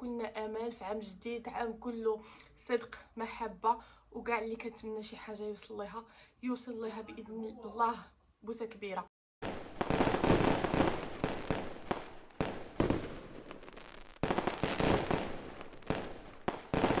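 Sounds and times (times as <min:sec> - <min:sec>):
fireworks bangs: 0:09.4 - 0:17.0
fireworks crackling and popping: 0:09.4 - 0:17.0.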